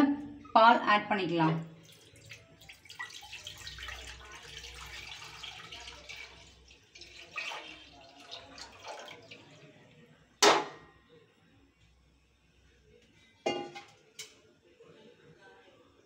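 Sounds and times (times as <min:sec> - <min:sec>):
milk pouring and splashing: 0:01.8 - 0:09.7.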